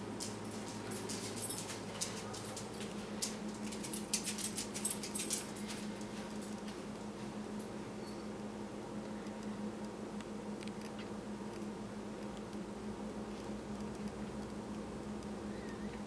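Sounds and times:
steady low hum: 0:00.0 - 0:16.0
cat claws tapping and scratching: 0:00.2 - 0:05.8.

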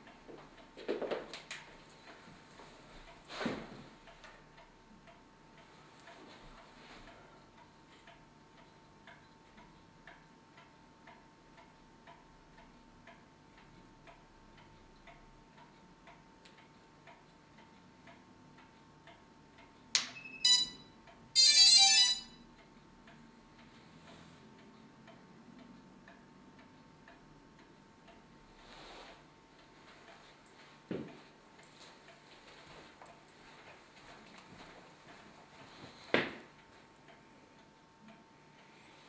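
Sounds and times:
wall clock ticking: 0:00.0 - 0:39.0
electronic start-up beeps: 0:20.0 - 0:20.8, 0:21.4 - 0:22.4.

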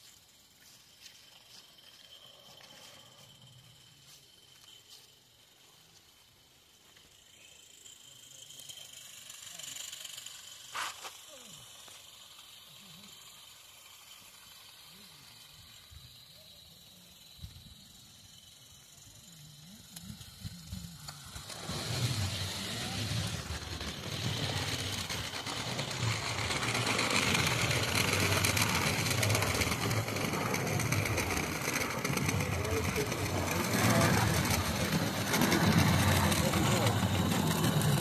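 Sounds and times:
miniature train rattling on track: 0:00.0 - 0:38.0.

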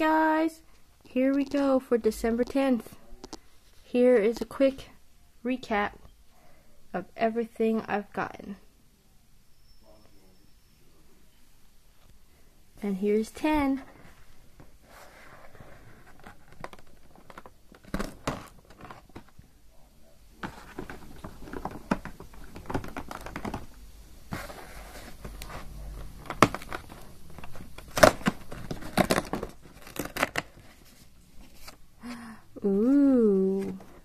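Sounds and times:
cardboard crinkling and tearing: 0:15.5 - 0:19.4, 0:24.3 - 0:31.8.

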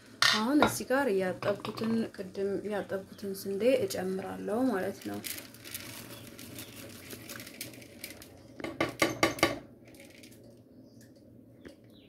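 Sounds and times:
water boiling and bubbling: 0:00.0 - 0:11.4
grains poured into water: 0:04.8 - 0:08.4.

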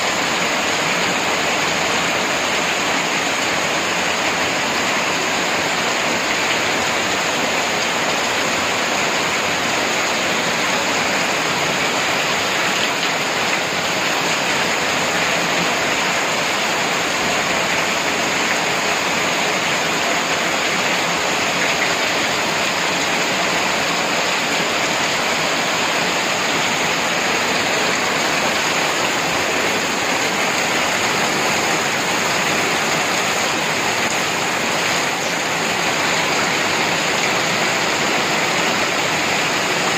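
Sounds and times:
heavy rain on trees and rooftops: 0:00.0 - 0:39.9.

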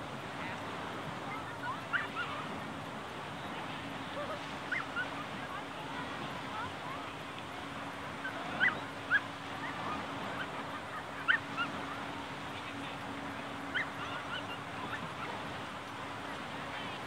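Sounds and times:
distant dogs barking: 0:01.6 - 0:02.5, 0:04.1 - 0:05.5, 0:08.1 - 0:12.2, 0:13.5 - 0:15.6.

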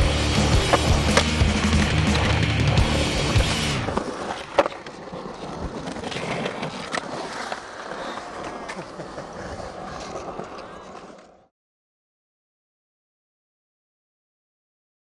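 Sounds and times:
music: 0:00.0 - 0:04.0
skateboard knocking on coping: 0:00.0 - 0:11.3
skateboard clacking: 0:00.0 - 0:11.5
skateboard wheels rolling on concrete: 0:00.0 - 0:11.5.

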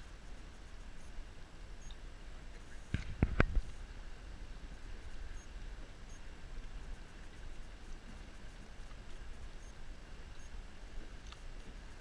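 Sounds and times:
faint ticks: 0:00.0 - 0:01.2, 0:01.8 - 0:03.9, 0:04.6 - 0:12.0.

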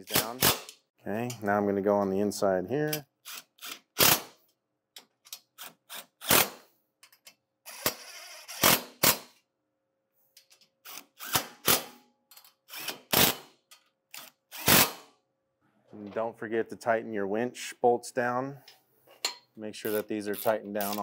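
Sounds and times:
impact driver bursts: 0:14.5 - 0:15.1.

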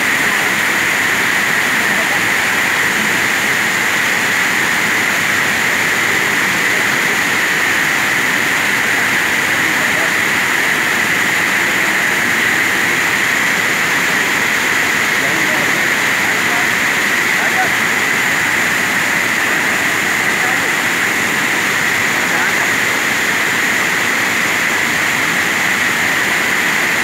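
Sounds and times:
river rushing: 0:00.0 - 0:27.0.

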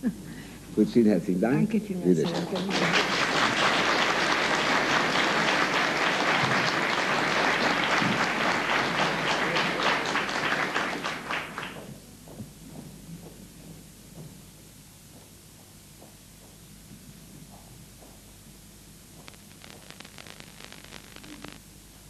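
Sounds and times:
audience applauding: 0:02.2 - 0:12.0.

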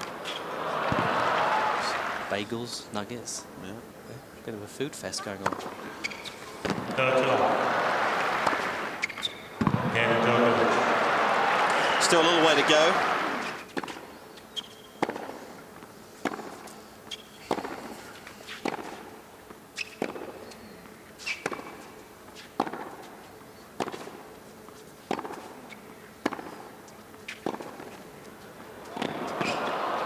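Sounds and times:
ball bouncing on hard court: 0:00.8 - 0:01.5, 0:05.4 - 0:07.0, 0:08.3 - 0:10.0, 0:22.6 - 0:22.9, 0:25.1 - 0:25.4, 0:28.9 - 0:29.7
racket hitting tennis ball: 0:08.1 - 0:10.0, 0:15.0 - 0:15.4, 0:16.2 - 0:16.8, 0:17.5 - 0:19.0, 0:22.4 - 0:23.1, 0:23.8 - 0:24.2, 0:25.0 - 0:26.6, 0:27.2 - 0:28.0, 0:28.8 - 0:29.8.

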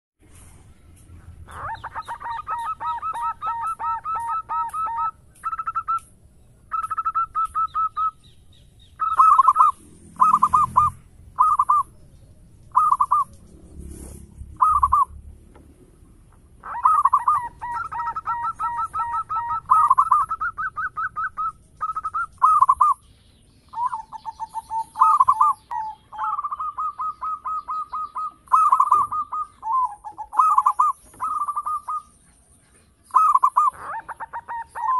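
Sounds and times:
dove cooing: 0:01.4 - 0:06.1, 0:06.7 - 0:08.2, 0:09.0 - 0:11.9, 0:12.7 - 0:13.5, 0:14.5 - 0:15.1, 0:16.6 - 0:23.0, 0:23.7 - 0:32.2, 0:32.8 - 0:34.9.

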